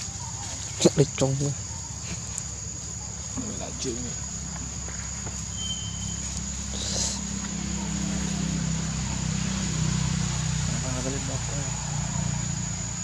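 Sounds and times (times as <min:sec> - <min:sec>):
high insect buzz: 0:00.0 - 0:13.0
low engine drone: 0:05.5 - 0:13.0.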